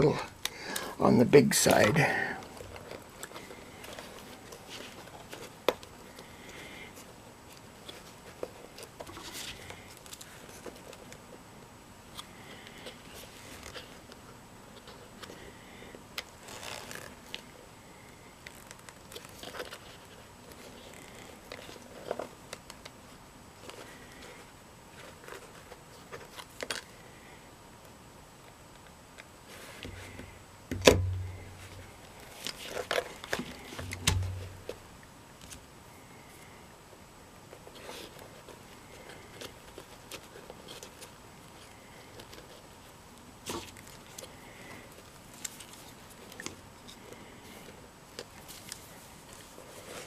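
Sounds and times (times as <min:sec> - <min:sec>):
small clicks and rustles: 0:12.1 - 0:27.1, 0:37.4 - 0:50.0.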